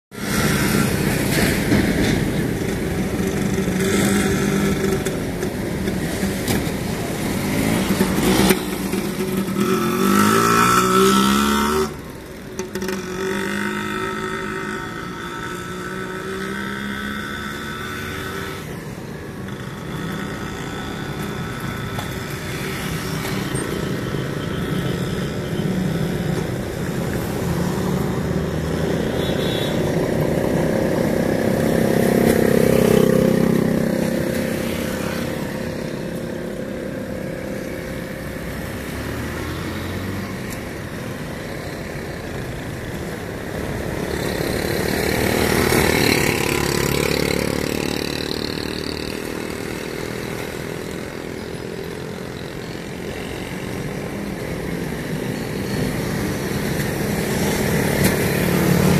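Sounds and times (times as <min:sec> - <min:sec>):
road traffic: 0:00.1 - 0:58.9
motorcycle passing: 0:00.2 - 0:58.9
vehicle approaching: 0:29.9 - 0:58.9.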